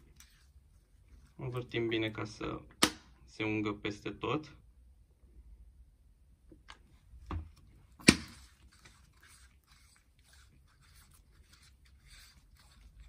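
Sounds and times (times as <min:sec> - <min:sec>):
gloves rubbing on metal: 0:00.0 - 0:02.3, 0:08.3 - 0:13.0.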